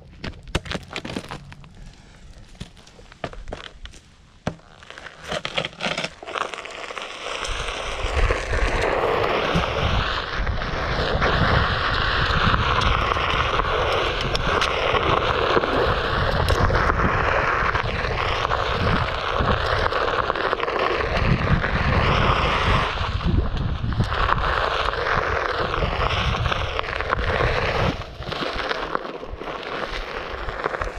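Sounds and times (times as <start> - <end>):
electric board rolling on dirt: 0.0 - 30.9
wind on the microphone: 7.5 - 28.6.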